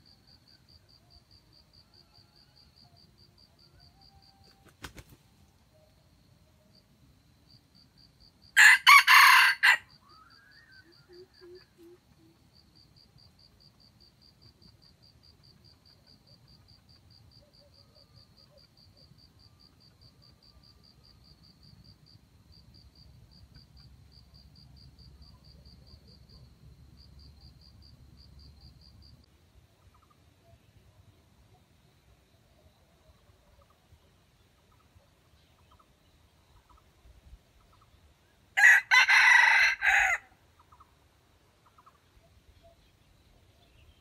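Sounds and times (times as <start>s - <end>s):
rooster crowing: 8.6s - 9.9s, 38.6s - 40.3s.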